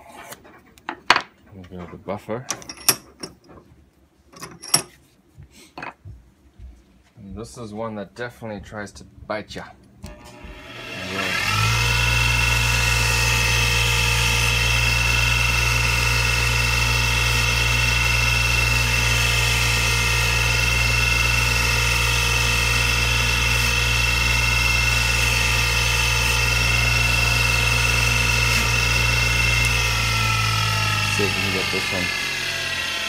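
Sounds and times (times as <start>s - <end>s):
bench grinder running: 10.0s - 33.0s.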